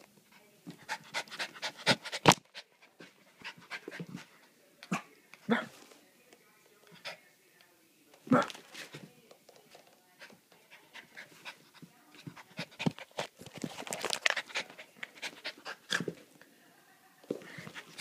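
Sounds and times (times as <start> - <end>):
puppy panting and licking: 0.2 - 4.6, 10.2 - 16.1.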